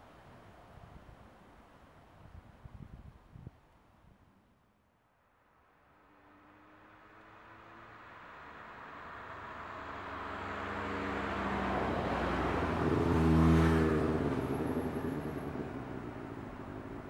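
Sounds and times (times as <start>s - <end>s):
vehicle engine driving past: 5.8s - 17.0s.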